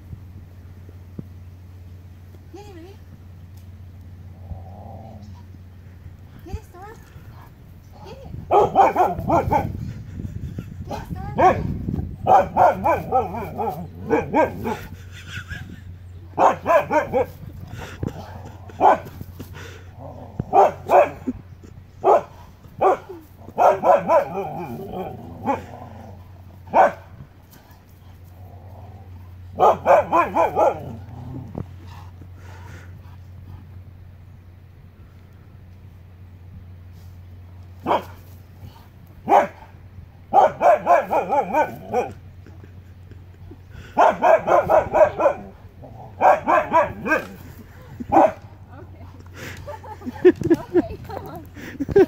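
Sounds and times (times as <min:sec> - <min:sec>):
dogs yowling: 0:08.4 - 0:10.0, 0:11.4 - 0:15.6, 0:16.3 - 0:21.4, 0:22.0 - 0:27.1, 0:28.3 - 0:31.8, 0:40.3 - 0:42.6, 0:43.8 - 0:48.4
dogs barking: 0:08.5 - 0:10.0, 0:10.9 - 0:15.0, 0:16.3 - 0:19.2, 0:20.4 - 0:21.4, 0:22.0 - 0:25.8, 0:26.6 - 0:27.2, 0:29.5 - 0:31.1, 0:37.8 - 0:38.2, 0:39.2 - 0:42.7, 0:43.8 - 0:48.5.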